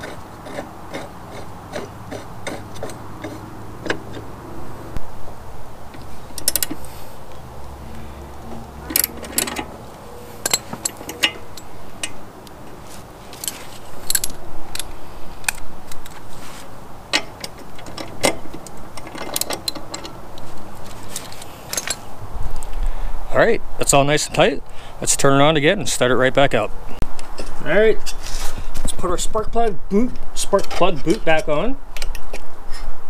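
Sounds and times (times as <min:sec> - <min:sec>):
socket wrench ratcheting: 0:06.0 - 0:06.9
metal tools clinking: 0:06.0 - 0:07.0, 0:07.9 - 0:16.2, 0:17.1 - 0:22.1.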